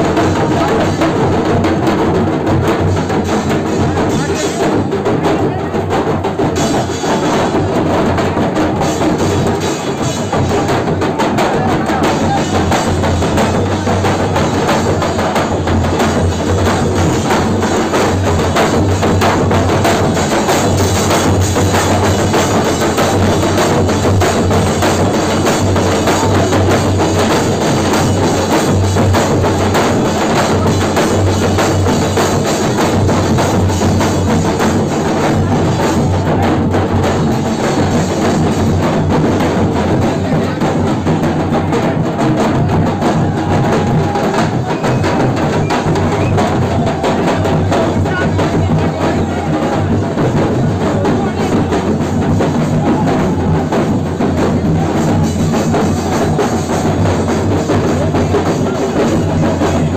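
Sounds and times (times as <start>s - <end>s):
drum and percussion music: 0.0s - 59.9s.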